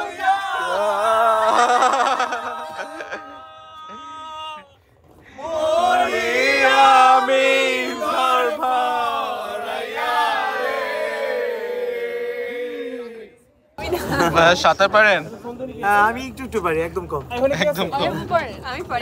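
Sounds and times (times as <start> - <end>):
men singing together: 0.0 - 3.2, 5.3 - 10.4.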